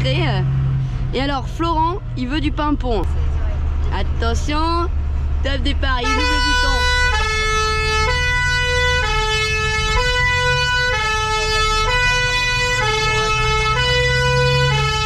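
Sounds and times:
truck engine running: 0:00.0 - 0:15.0
two-tone siren horn: 0:06.0 - 0:15.0.

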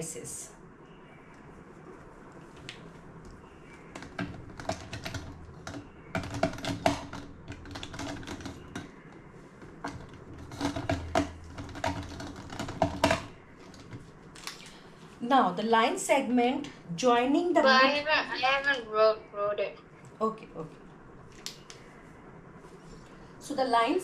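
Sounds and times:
computer keyboard typing: 0:04.0 - 0:08.9.

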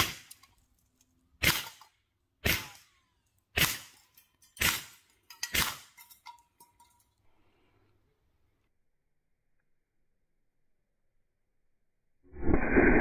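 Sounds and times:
air pistol shots: 0:01.4 - 0:01.8, 0:02.4 - 0:02.8, 0:03.5 - 0:04.0, 0:04.6 - 0:05.9.

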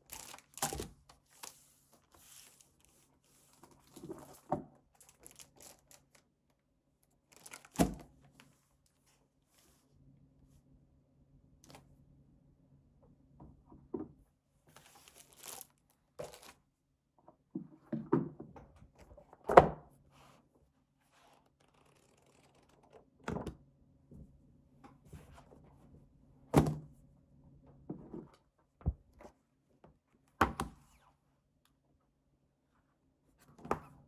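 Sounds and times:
plastic and paper rustling: 0:00.0 - 0:06.3, 0:07.3 - 0:08.6, 0:14.7 - 0:16.6.

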